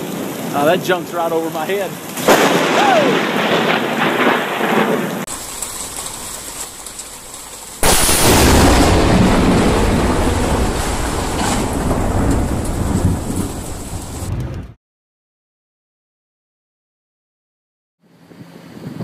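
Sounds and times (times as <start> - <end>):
heavy rain: 0.0 - 14.7
thunder rumbling: 0.0 - 14.8
loud thunderclap: 2.2 - 14.8.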